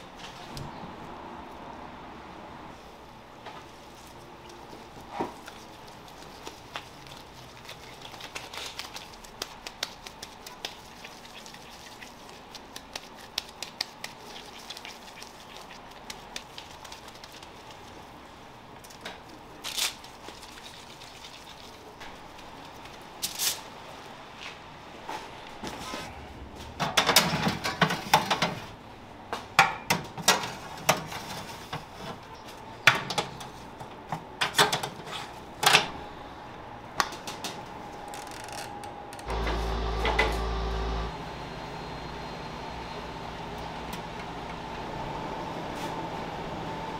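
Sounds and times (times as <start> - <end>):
oven hum: 33.4 - 46.9.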